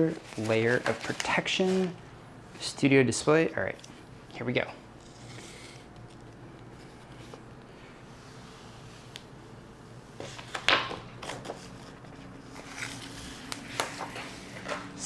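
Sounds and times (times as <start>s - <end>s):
plastic wrap rustling and crinkling: 0.0s - 2.0s, 10.3s - 15.0s.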